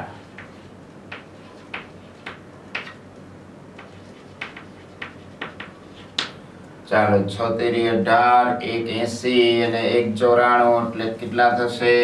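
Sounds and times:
chalk tapping on blackboard: 0.2 - 3.0, 3.8 - 6.4.

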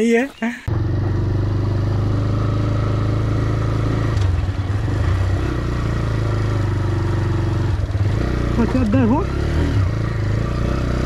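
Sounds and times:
motorcycle engine running: 0.6 - 11.0.

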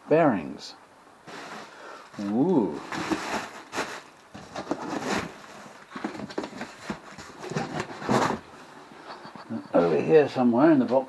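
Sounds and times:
cardboard box rustling: 1.3 - 8.5
plastic wrapping crinkling: 2.1 - 8.5.

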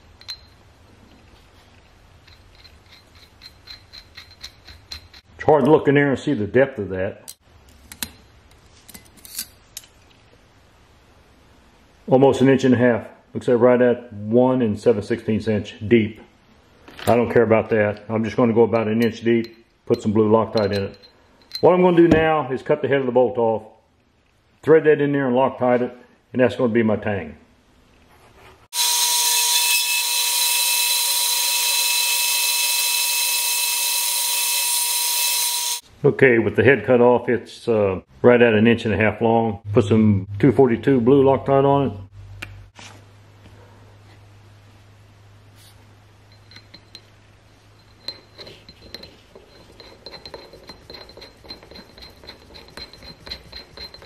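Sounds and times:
power tool whining: 28.8 - 35.8.

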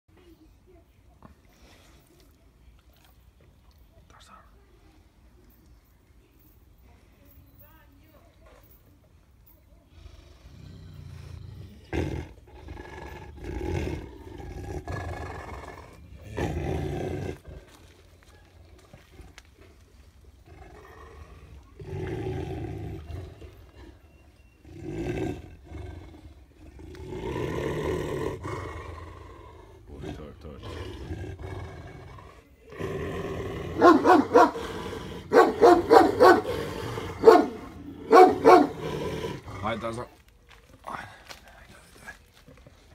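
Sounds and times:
large dog growling: 9.8 - 18.0, 18.8 - 39.9
large dog barking: 33.7 - 39.0.

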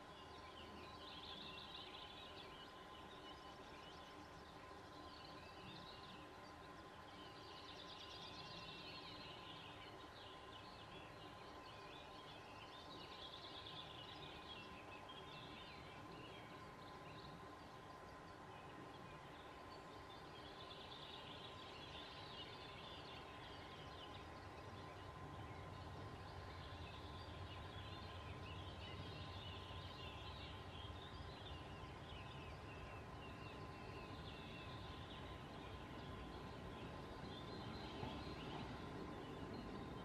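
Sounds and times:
faint outdoor ambience: 0.0 - 40.0
small birds twittering: 0.0 - 40.0.

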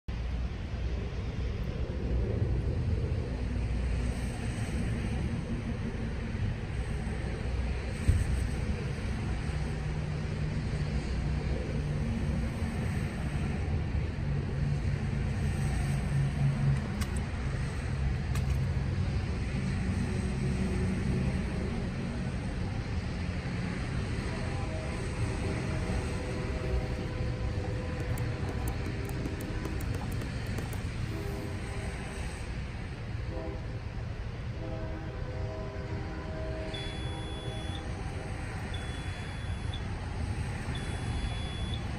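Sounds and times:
faint clicks: 28.0 - 30.9.

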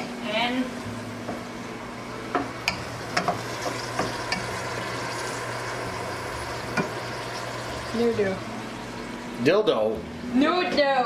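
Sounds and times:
meat sizzling in a pot: 2.4 - 9.5.

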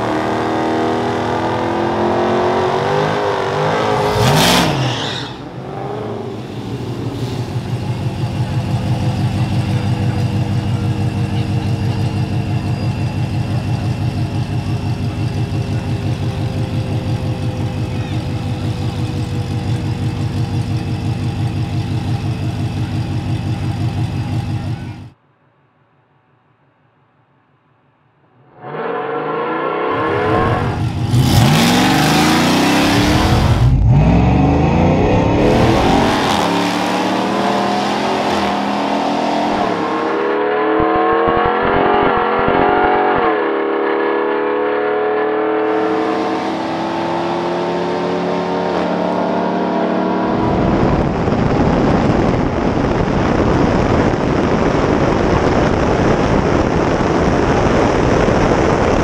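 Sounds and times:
engine revving at full throttle: 0.0 - 12.6, 28.6 - 59.0
wind rush: 50.2 - 59.0.

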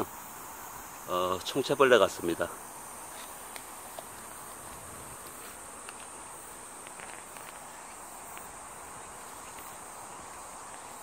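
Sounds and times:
high-pitched insect drone: 0.0 - 11.0
faint ticks: 3.1 - 11.0.

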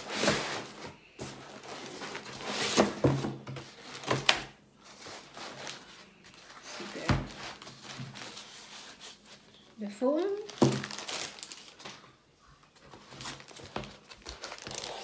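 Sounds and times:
cardboard and foam being handled: 4.8 - 12.0.

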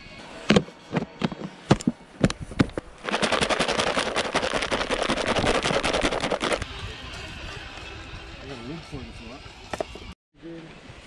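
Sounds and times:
food rattling in shaken tub: 2.8 - 6.6.

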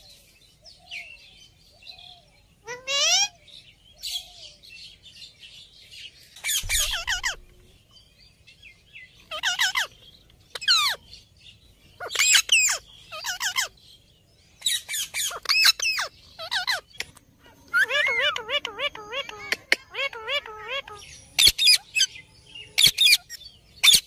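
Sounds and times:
parakeets calling harshly: 2.6 - 3.4, 6.4 - 7.5, 9.2 - 11.1, 11.9 - 13.8, 14.6 - 17.0, 17.7 - 22.2, 22.8 - 24.0.

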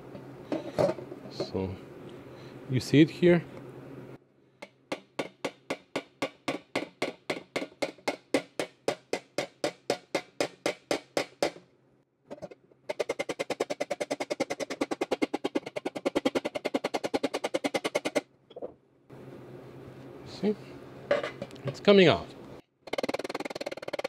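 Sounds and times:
small hammer tapping metal: 4.6 - 11.6.

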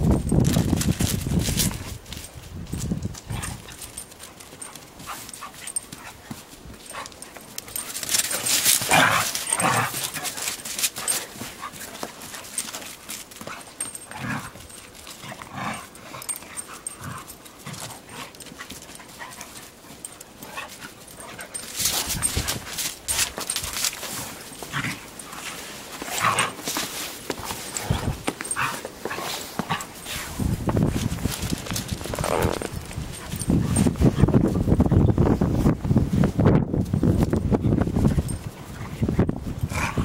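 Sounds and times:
dogs playing noises: 0.2 - 40.0
paws scuffing in snow: 0.6 - 34.7.

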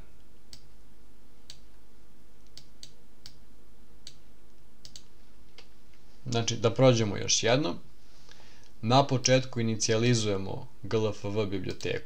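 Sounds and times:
steady low hum: 0.0 - 12.0
computer mouse clicking: 2.4 - 3.4, 4.0 - 4.2, 4.8 - 5.7.

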